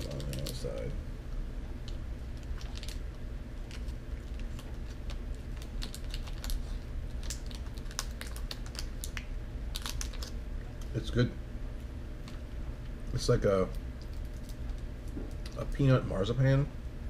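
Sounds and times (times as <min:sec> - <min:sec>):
foil wrapper crackling: 0:00.0 - 0:00.9, 0:01.8 - 0:11.0, 0:13.6 - 0:15.7
low steady hum: 0:00.0 - 0:17.0.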